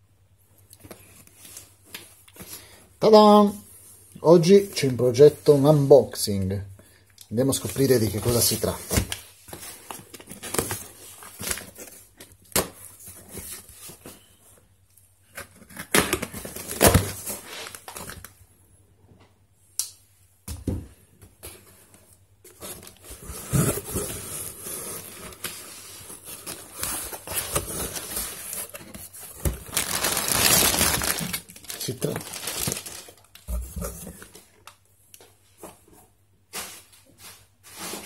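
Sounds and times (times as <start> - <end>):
plastic packing crinkling: 24.9 - 34.8.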